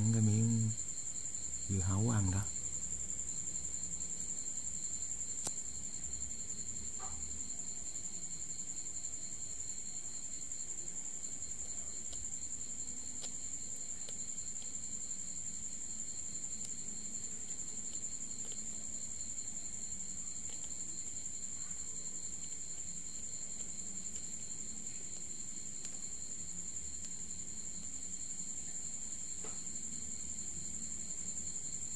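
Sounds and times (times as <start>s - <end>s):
insects trilling: 0.0s - 31.9s.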